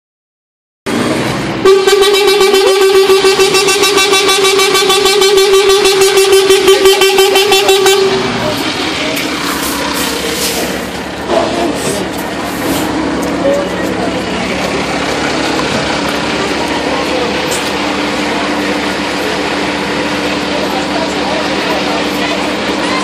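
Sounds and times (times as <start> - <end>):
street noise: 0.9 - 23.0
fire engine horn blast: 1.6 - 8.6.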